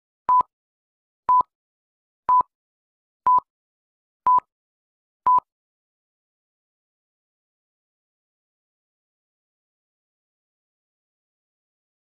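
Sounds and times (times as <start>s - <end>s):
short electronic beeps: 3.3s - 3.5s, 4.3s - 4.5s.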